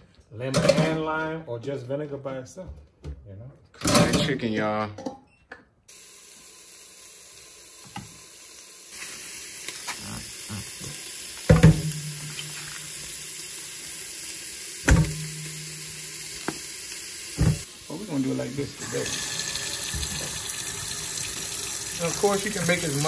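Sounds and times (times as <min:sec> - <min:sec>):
tap water running into sink: 0:05.9 - 0:23.0.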